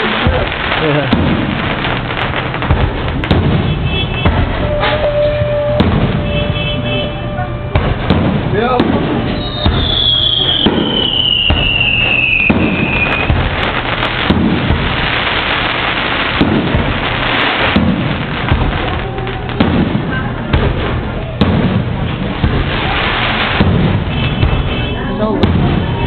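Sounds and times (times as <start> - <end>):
fireworks booming: 0.0 - 26.0
fireworks hissing and crackling: 0.0 - 26.0
falling firework whistle: 3.2 - 8.3, 9.1 - 19.7, 21.1 - 24.8.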